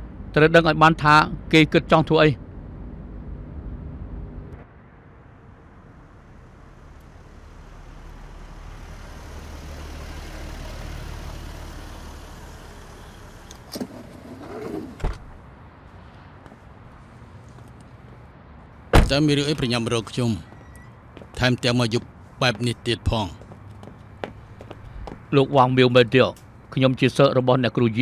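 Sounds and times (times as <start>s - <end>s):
road noise: 0.0s - 28.0s
car engine rumble: 2.4s - 26.7s
car door unlatched and opened: 13.5s - 15.4s.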